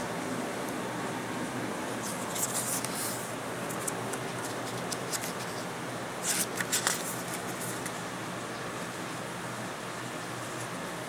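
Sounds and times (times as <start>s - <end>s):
steady background hum: 0.0s - 11.0s
paper pages rustling: 2.0s - 8.0s.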